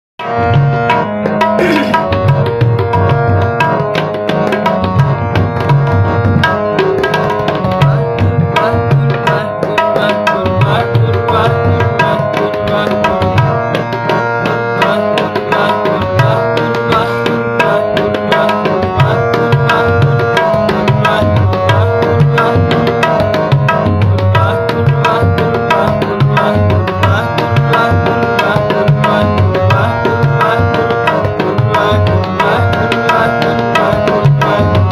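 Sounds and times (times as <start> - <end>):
tabla rhythm: 0.2 - 34.9
harmonium sustained notes: 10.3 - 34.9.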